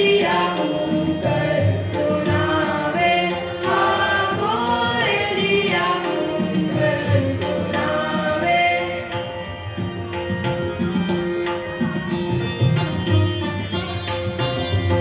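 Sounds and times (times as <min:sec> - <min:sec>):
group singing in chorus: 0:00.0 - 0:09.2
instruments accompanying: 0:00.0 - 0:15.0.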